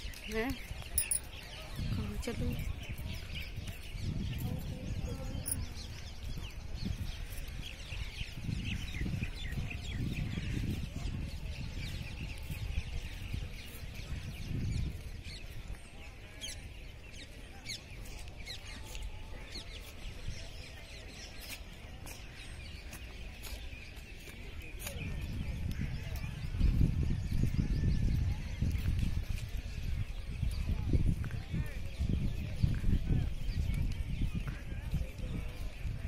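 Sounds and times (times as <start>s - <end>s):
birds chirping: 0.0s - 27.4s.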